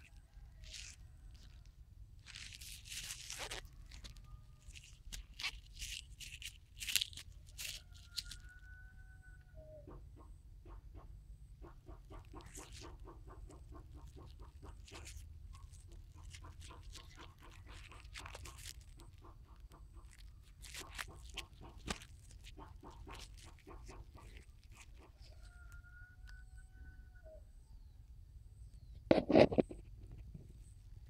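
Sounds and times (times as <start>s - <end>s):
chicken clucking: 7.4s - 27.9s.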